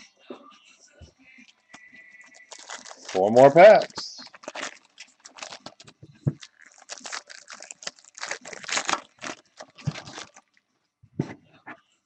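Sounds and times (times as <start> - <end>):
foil wrappers tearing and crinkling: 2.2 - 10.6.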